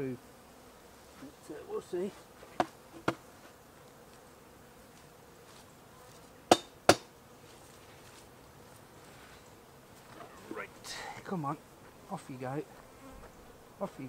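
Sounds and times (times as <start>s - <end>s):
bees buzzing faintly: 0.0s - 14.0s
knocks of hive equipment: 2.5s - 3.2s, 6.5s - 7.1s.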